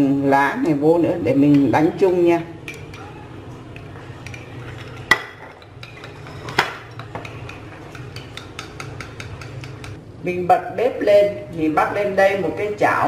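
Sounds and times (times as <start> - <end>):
chopsticks clicking against bowl: 6.9 - 10.0.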